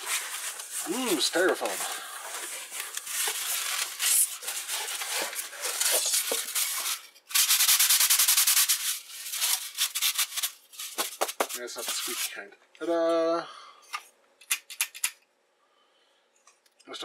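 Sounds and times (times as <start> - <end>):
styrofoam scraping cardboard: 0.0 - 12.3.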